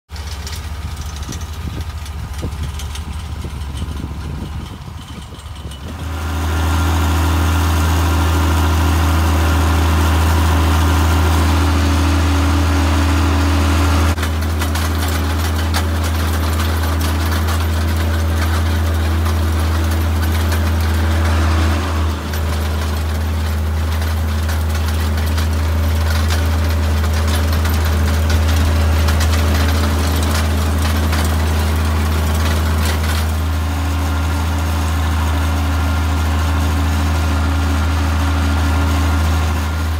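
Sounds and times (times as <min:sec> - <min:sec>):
tractor engine droning: 0:00.1 - 0:39.9.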